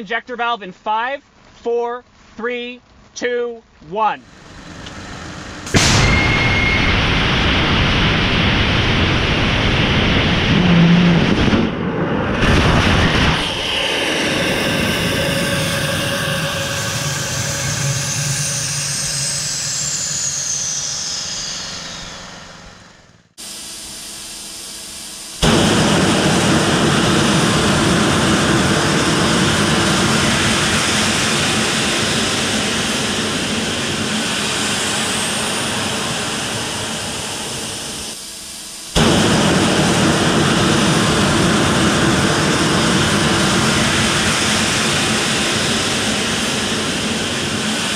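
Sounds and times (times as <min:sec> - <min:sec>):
rocket engine roaring: 0:04.2 - 0:23.4, 0:25.3 - 0:38.2, 0:38.8 - 0:47.9
propellant rushing through engine: 0:04.2 - 0:47.9
falling whistle: 0:05.7 - 0:08.2, 0:14.3 - 0:23.1.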